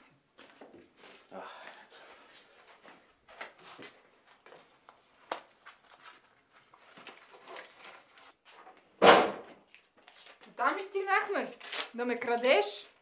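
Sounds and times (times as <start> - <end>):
loud thump: 9.0 - 9.5.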